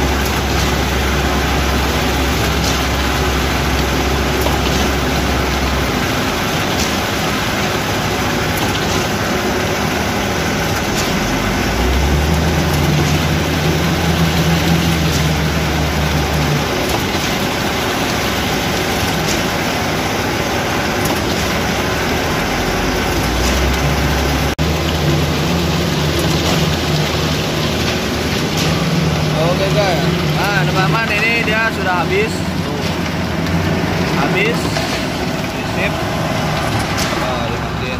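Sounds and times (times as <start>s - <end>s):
heavy diesel engines running: 0.0s - 37.9s
sliding concrete noise: 0.0s - 37.9s.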